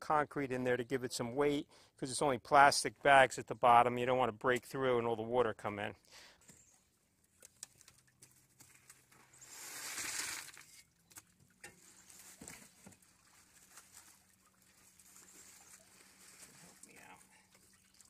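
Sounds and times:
plastic bag rustling: 9.0s - 10.8s, 11.8s - 17.0s
concrete sliding into tube: 9.3s - 10.9s.

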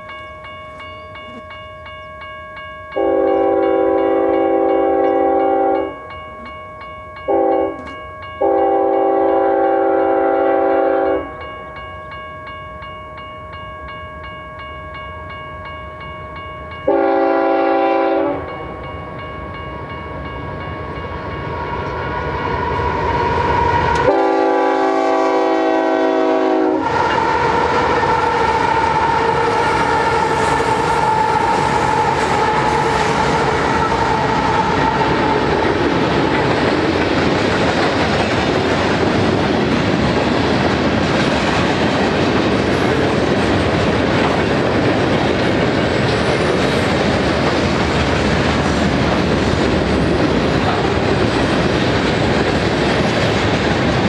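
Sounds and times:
crossing bell ringing: 0.0s - 53.5s
train passing with clickety-clack: 0.0s - 54.0s
locomotive air horn blasts: 3.0s - 6.0s, 7.3s - 7.8s, 8.4s - 11.4s, 16.9s - 18.5s, 23.9s - 27.3s.

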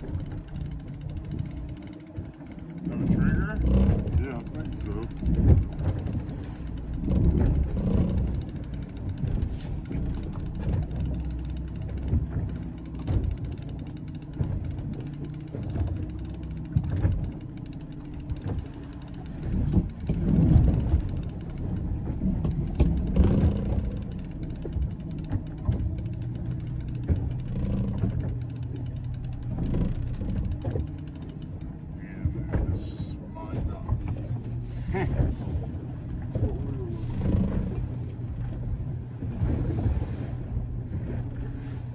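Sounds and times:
outboard engine running: 0.0s - 41.9s
water noise: 0.0s - 41.9s
wind: 0.0s - 41.9s.

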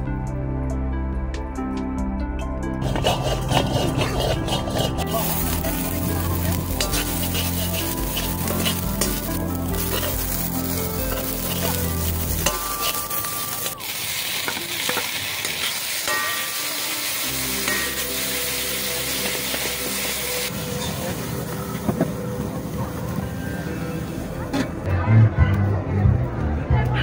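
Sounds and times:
metal ladle stirring: 2.8s - 16.6s
vegetables sizzling in a wok: 5.0s - 21.9s.

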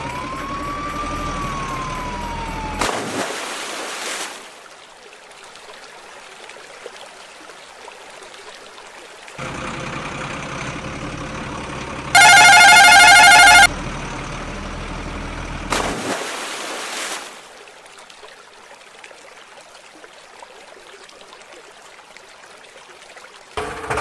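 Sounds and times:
splash into water: 2.8s - 4.8s, 15.7s - 18.4s
truck engine running: 9.4s - 15.8s
warbling horn blast: 12.2s - 13.7s.

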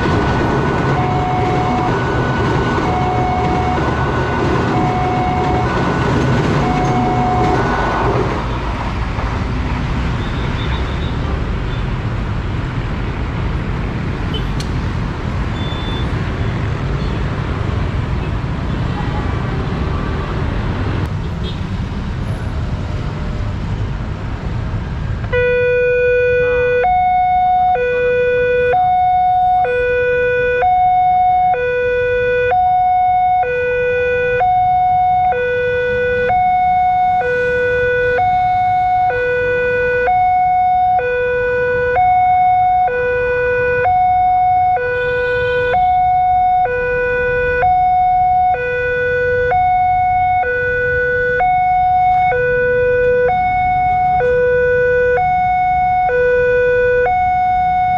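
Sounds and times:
two-tone crossing alarm: 0.0s - 8.0s, 25.2s - 57.9s
road traffic rumble: 0.0s - 57.9s.

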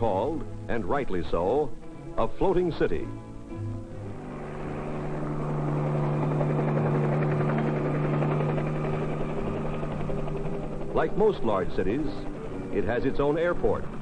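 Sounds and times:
helicopter hovering: 0.0s - 14.0s.

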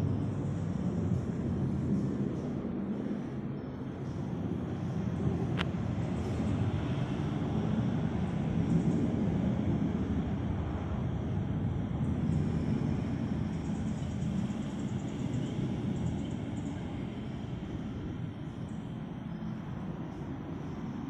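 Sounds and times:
low rumble of outdoor ambience: 0.0s - 21.0s.

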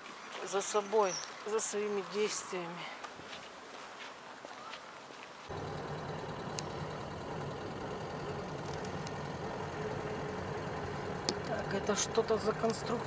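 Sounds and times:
faint street ambience: 0.0s - 13.0s
car engine and road hum: 5.5s - 13.0s.

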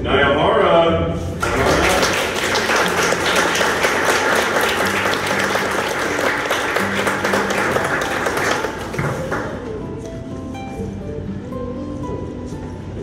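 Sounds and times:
audience applauding: 1.4s - 9.8s.

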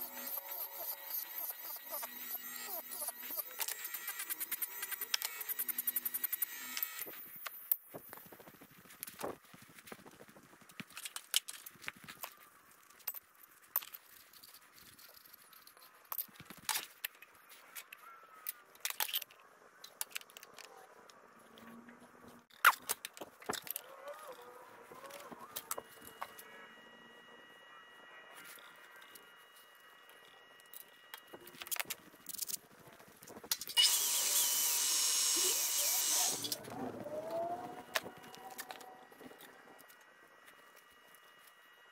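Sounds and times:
drill whining into metal sheet: 0.0s - 7.2s, 33.8s - 39.9s.

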